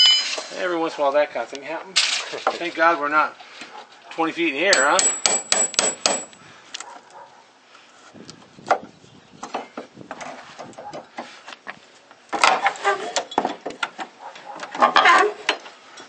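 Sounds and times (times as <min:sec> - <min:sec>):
pry bar scraping wood and nail: 0:12.4 - 0:15.6.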